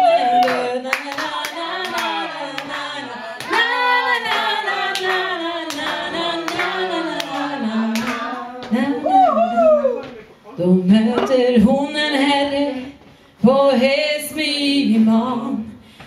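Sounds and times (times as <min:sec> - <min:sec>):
hand claps: 0:00.4 - 0:02.8, 0:03.4 - 0:08.8
woman singing a ballad: 0:10.6 - 0:15.8.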